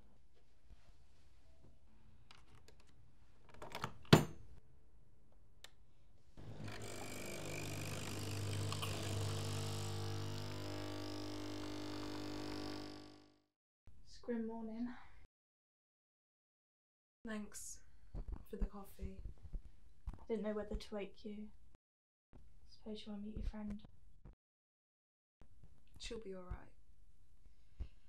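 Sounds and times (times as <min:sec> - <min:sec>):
coffee machine pump humming: 0:06.4 - 0:13.2.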